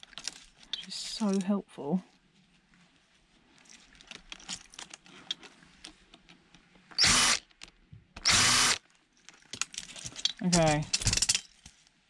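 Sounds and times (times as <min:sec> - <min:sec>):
power drill-driver running: 0:07.0 - 0:07.4, 0:08.2 - 0:08.8.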